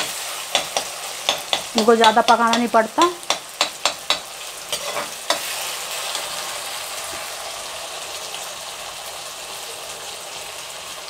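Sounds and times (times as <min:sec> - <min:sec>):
metal spoon scraping pan: 0:00.0 - 0:06.3
vegetables sizzling in oil: 0:00.0 - 0:11.0.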